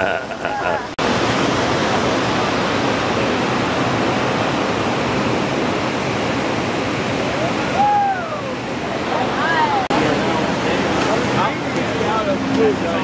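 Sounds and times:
whitewater rapid rushing: 0.0s - 13.0s.

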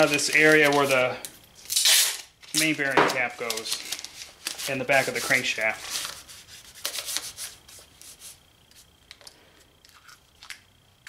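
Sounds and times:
paper rustling: 0.0s - 1.0s, 2.4s - 8.4s
tape scraping: 1.6s - 8.8s.

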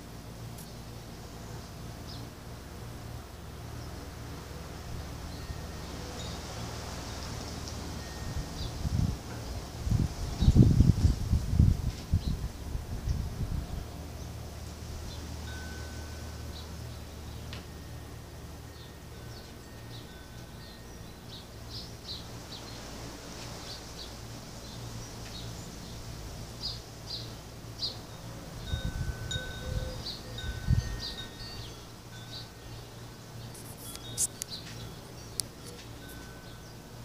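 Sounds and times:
wind chimes tinkling: 5.0s - 9.7s, 14.8s - 22.8s, 27.2s - 37.0s.

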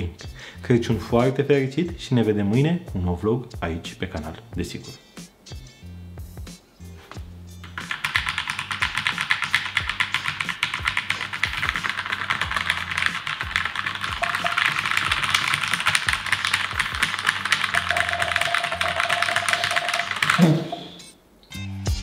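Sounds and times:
mechanical keyboard typing: 7.6s - 21.0s.

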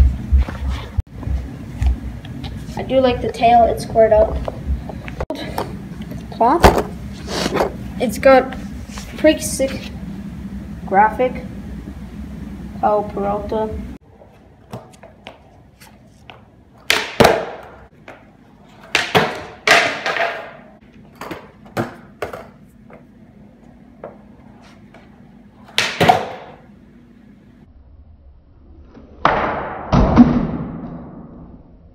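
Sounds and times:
skateboard wheels rolling on concrete: 14.0s - 26.6s
skateboard deck clacking and slapping: 16.2s - 22.6s, 25.7s - 26.6s.

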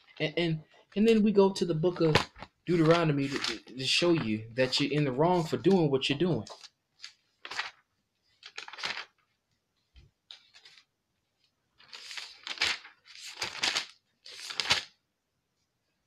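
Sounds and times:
thin pages flipping: 1.9s - 9.4s, 10.2s - 14.9s.

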